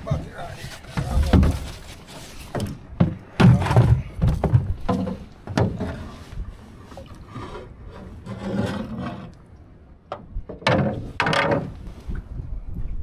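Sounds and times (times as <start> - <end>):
rubbing and knocking in metal boat: 0.0 - 6.2, 10.5 - 11.9
net rasping on boat: 0.2 - 3.3.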